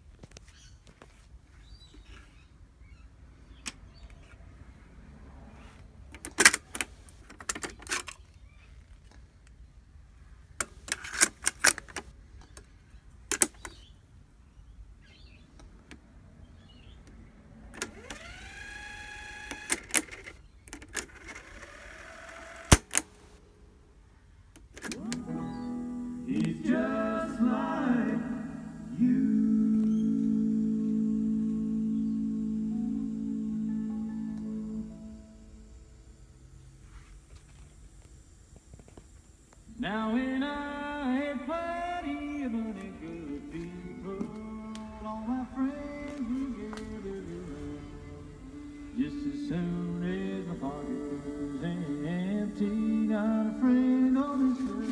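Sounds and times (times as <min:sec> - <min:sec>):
music from cassette: 0:24.9 - 0:35.9, 0:40.5 - 0:54.9.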